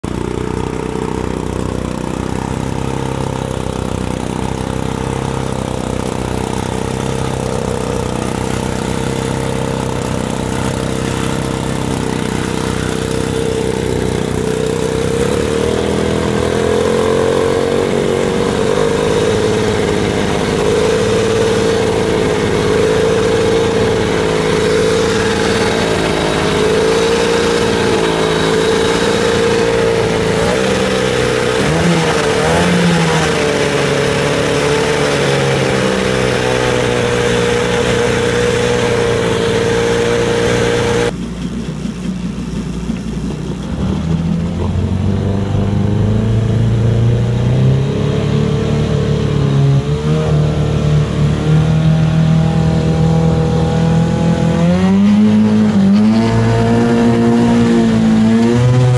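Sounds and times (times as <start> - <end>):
outboard racing engine: 0.0 - 58.9.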